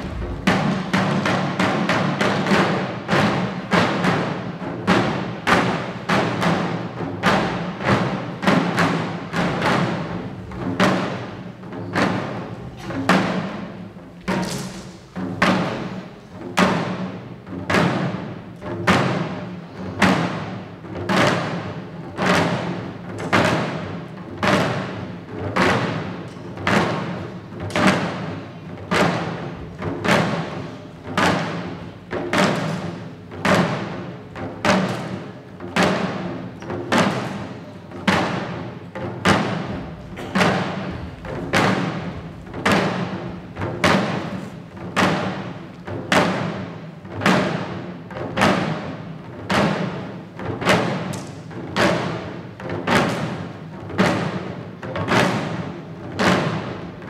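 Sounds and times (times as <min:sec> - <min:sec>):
drums beaten in steady rhythm: 0:00.0 - 0:57.0.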